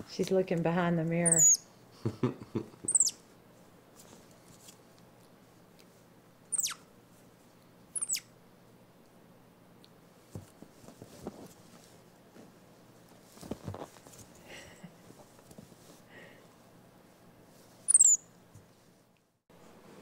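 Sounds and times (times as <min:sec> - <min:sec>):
monkey high thin calls: 0:01.3 - 0:01.6, 0:02.9 - 0:03.2, 0:06.5 - 0:06.8, 0:08.0 - 0:08.3, 0:17.9 - 0:18.2
soft taps and rustles: 0:10.2 - 0:14.4, 0:15.0 - 0:16.0.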